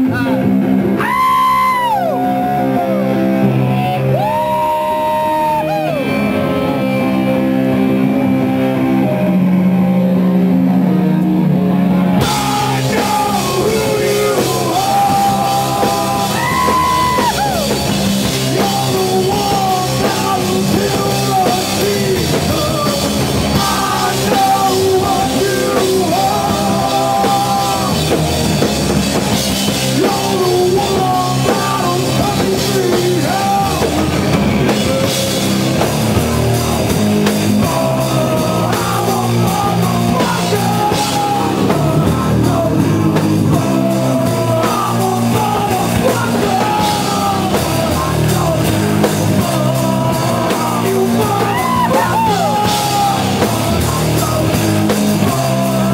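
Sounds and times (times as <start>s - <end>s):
electric guitar bending notes: 0.0s - 55.9s
live rock band playing: 0.0s - 55.9s
drums and cymbals crashing: 12.2s - 55.9s.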